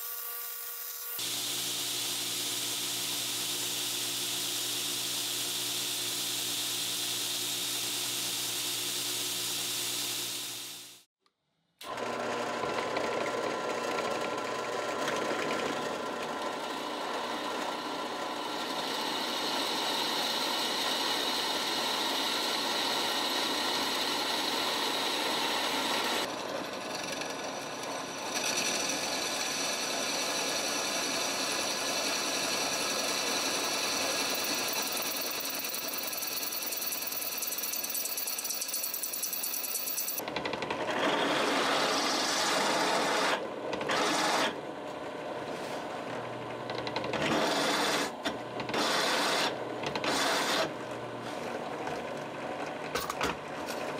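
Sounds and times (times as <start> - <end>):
drill press drilling steel: 15.1 - 40.2, 47.0 - 50.7.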